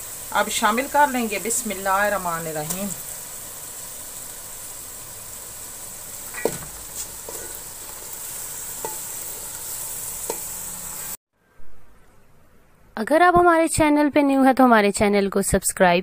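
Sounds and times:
oil and masala sizzling in a pot: 0.0 - 11.2.

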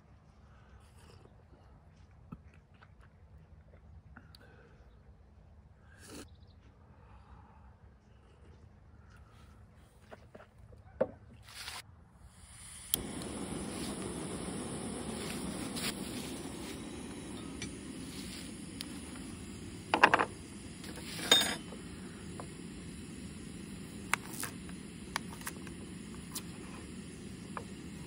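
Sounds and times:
gas stove hissing: 12.3 - 28.0
cookware clattering: 21.1 - 21.8.

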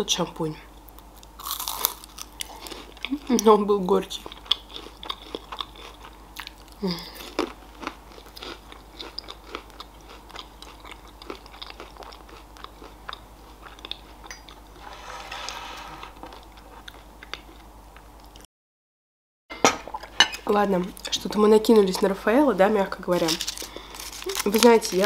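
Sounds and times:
crunchy candy chewing: 1.2 - 3.4, 4.2 - 14.6, 23.2 - 25.0.

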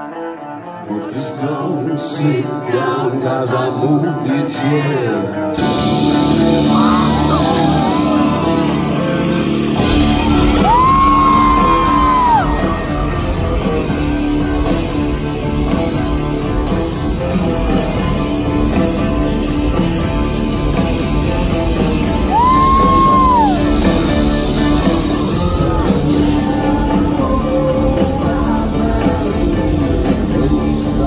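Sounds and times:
person singing: 0.0 - 9.4, 21.7 - 31.0
rock band playing live: 5.1 - 31.0.

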